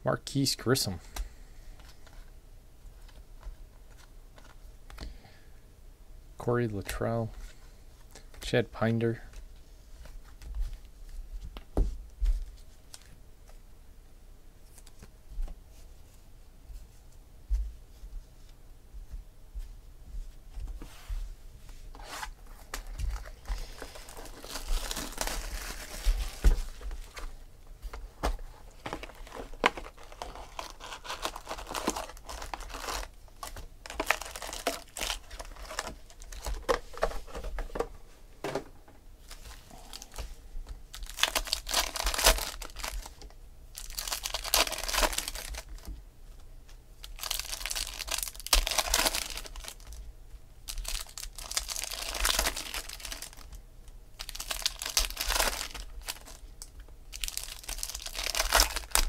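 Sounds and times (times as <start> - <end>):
foil packs tearing and crinkling: 22.6 - 26.7, 28.7 - 36.7, 40.9 - 45.9, 47.0 - 50.0, 50.7 - 53.5, 54.2 - 56.4, 57.1 - 59.0.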